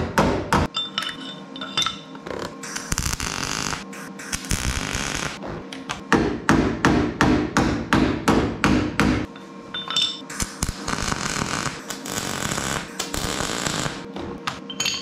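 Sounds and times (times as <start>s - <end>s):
electric welder arc crackling: 2.3s - 6.0s, 10.3s - 14.6s
hammer striking metal: 6.5s - 10.6s.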